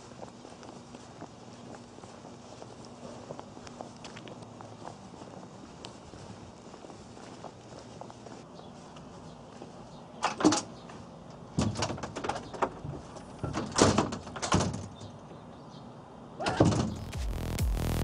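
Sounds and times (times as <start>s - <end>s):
music: 16.8s - 18.0s.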